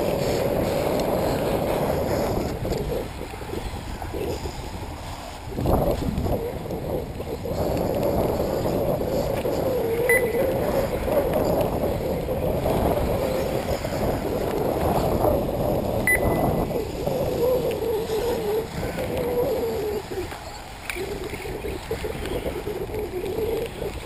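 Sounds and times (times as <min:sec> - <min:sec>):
wind noise on microphone: 0:00.0 - 0:24.0
short high beeps: 0:10.1 - 0:10.4, 0:16.1 - 0:16.4.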